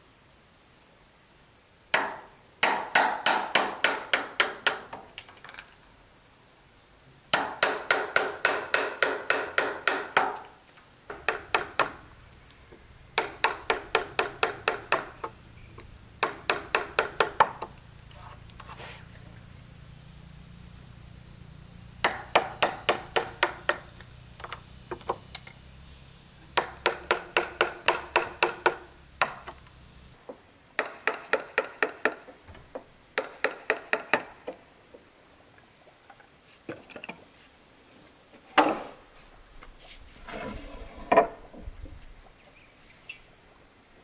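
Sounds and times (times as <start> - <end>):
wooden mallet striking chisel: 2.0 - 5.0, 7.3 - 10.5, 11.1 - 12.0, 13.2 - 17.7, 22.0 - 25.2, 26.6 - 29.6, 30.8 - 32.2.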